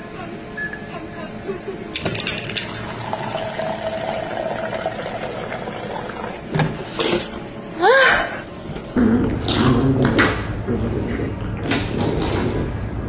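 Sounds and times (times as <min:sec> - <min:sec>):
water pouring into plastic cup: 0:02.0 - 0:06.5.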